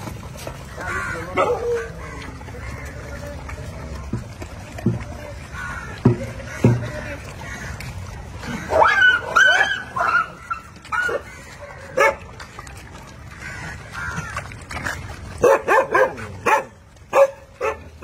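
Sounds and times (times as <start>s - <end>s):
dogs barking and yelping: 0.9s - 2.9s, 8.4s - 12.6s, 14.8s - 18.0s.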